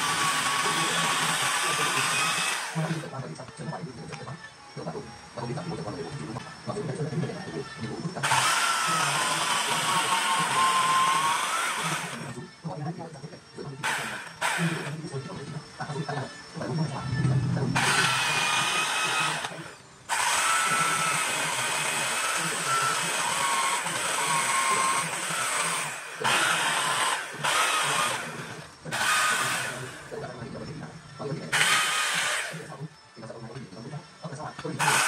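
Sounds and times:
power carving tool whining: 0:00.0 - 0:03.2, 0:05.6 - 0:12.6, 0:13.8 - 0:15.4, 0:17.8 - 0:30.7, 0:31.4 - 0:32.8, 0:34.8 - 0:35.0.

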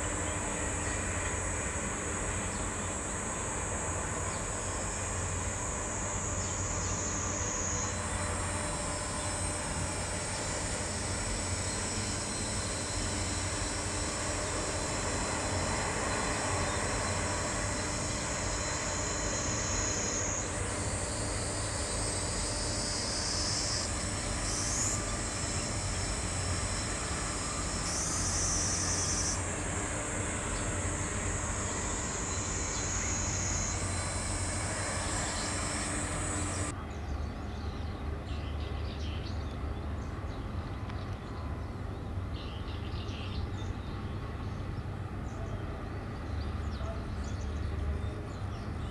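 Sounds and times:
high-pitched whine: 0:00.0 - 0:39.0
distant low hum: 0:07.9 - 0:36.7.

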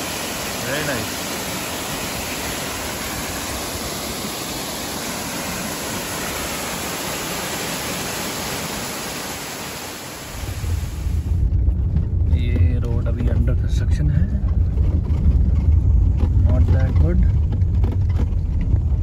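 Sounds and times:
waterfall rushing: 0:00.0 - 0:11.3
low rumble: 0:10.3 - 0:19.0.

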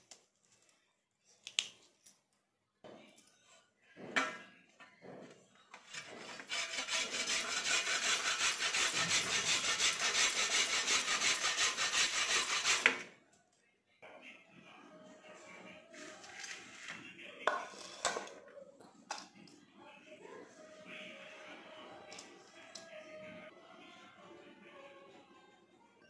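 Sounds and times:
grater rasping: 0:05.9 - 0:13.1.

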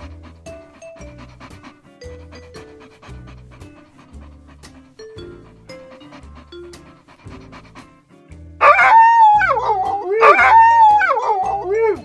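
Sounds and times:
light background music: 0:00.0 - 0:12.0
dog yelping in pain: 0:08.6 - 0:12.0.

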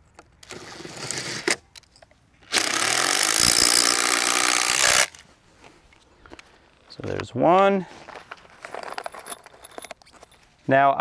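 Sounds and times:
impact driver hammering screw: 0:02.5 - 0:05.2.

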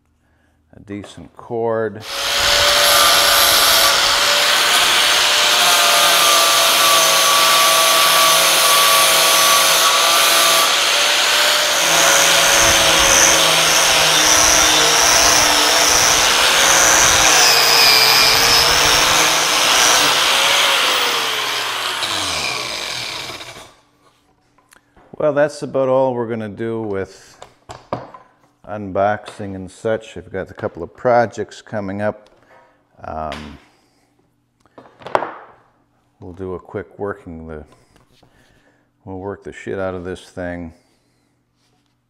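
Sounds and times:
angle grinder running: 0:02.0 - 0:23.8.

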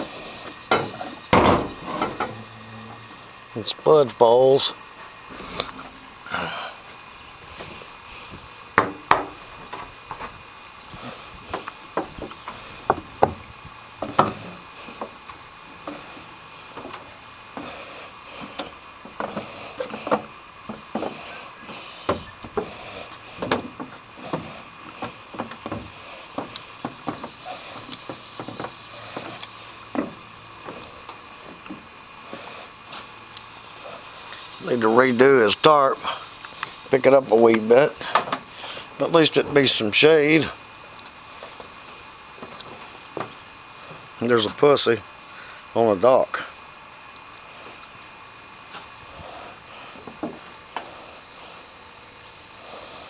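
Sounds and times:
faint hiss: 0:00.0 - 0:53.0
footsteps on wooden boards: 0:11.5 - 0:13.4, 0:18.4 - 0:33.0, 0:42.4 - 0:44.0, 0:49.9 - 0:50.9.

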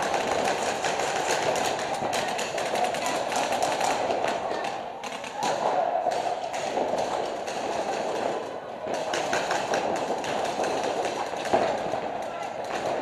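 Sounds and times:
paintballs hitting inflatable bunkers: 0:00.0 - 0:13.0.

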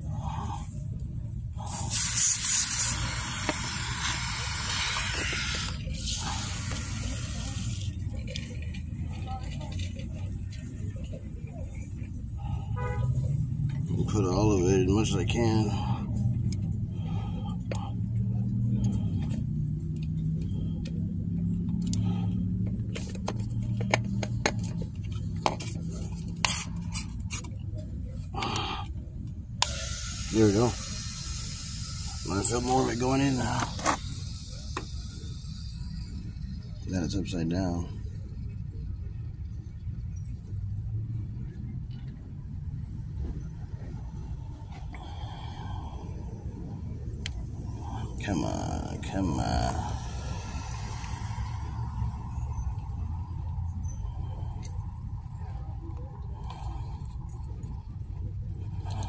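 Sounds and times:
steady low hum: 0:00.0 - 0:59.0
aerosol can hissing: 0:01.6 - 0:07.9, 0:29.6 - 0:36.1.

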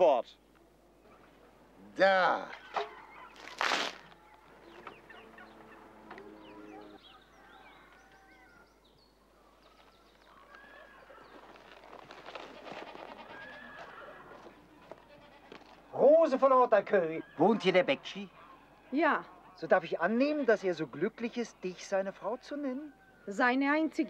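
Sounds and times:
small birds chirping: 0:00.3 - 0:12.5
poultry calls: 0:02.4 - 0:08.8, 0:09.4 - 0:16.0, 0:17.1 - 0:19.7.

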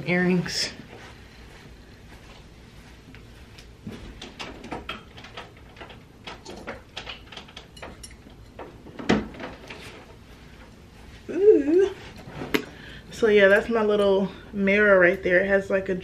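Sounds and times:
cabinet door clicks and rattles: 0:08.6 - 0:09.7.

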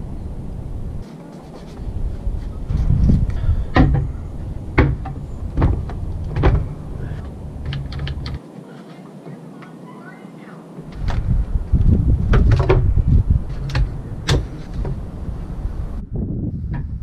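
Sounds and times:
low rumble: 0:00.0 - 0:01.0, 0:01.8 - 0:08.4, 0:10.8 - 0:17.0
wooden boards knocking: 0:02.8 - 0:08.4.

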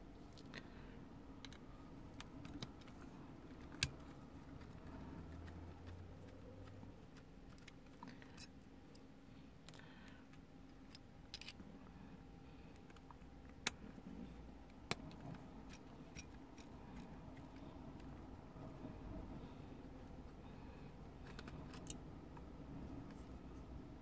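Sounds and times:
small metal parts clicking: 0:10.7 - 0:11.6, 0:21.2 - 0:22.5.

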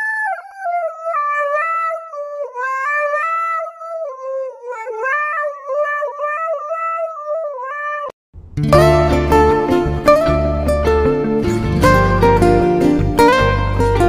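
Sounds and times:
dog howling: 0:00.0 - 0:08.1.

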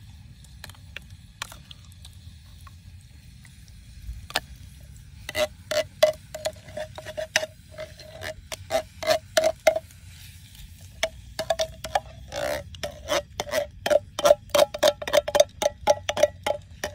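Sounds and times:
metal spoon clinking on tin can: 0:11.0 - 0:16.9.

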